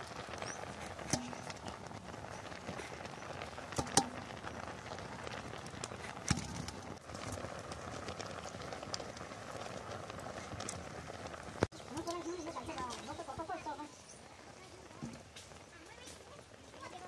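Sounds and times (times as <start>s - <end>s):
pot boiling with bubbling hiss: 0.0s - 17.0s.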